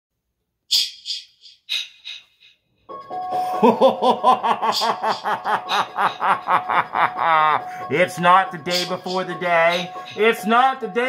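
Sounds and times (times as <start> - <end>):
steady musical tone: 2.9 - 11.0
deep rhythmic laugh: 3.4 - 8.0.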